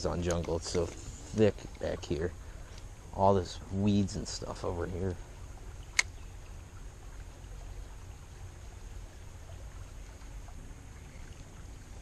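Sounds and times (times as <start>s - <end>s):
even hiss: 0.0s - 6.2s.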